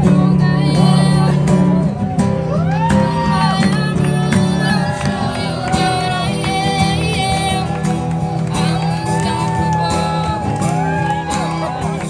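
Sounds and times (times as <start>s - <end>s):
person singing: 0.0s - 2.0s, 2.6s - 12.0s.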